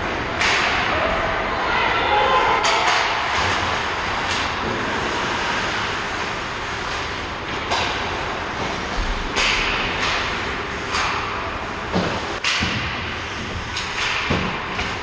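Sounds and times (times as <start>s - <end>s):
hockey sticks and puck clacking: 0.4s - 0.9s, 2.5s - 5.2s, 6.8s - 15.0s.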